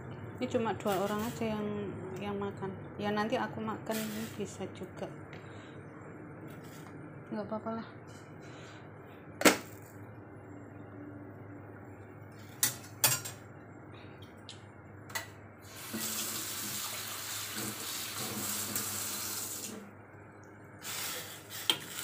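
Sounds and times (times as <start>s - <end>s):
kitchen tap running: 15.7s - 19.8s.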